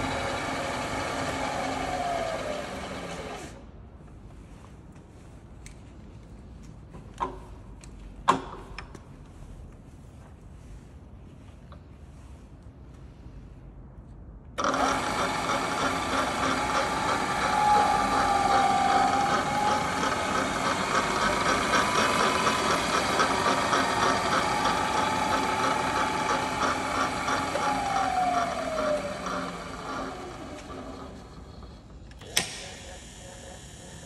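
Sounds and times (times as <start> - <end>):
milling machine gear whine: 14.6 - 34.0.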